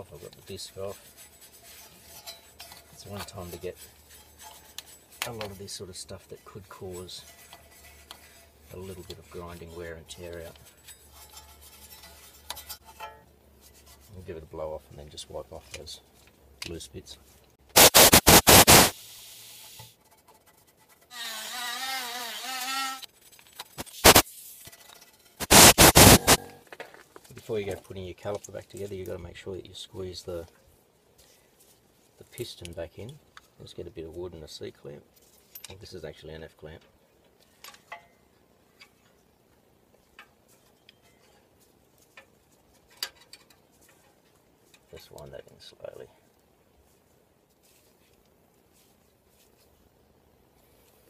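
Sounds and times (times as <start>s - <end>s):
flying insect buzzing: 21.1s - 23.0s.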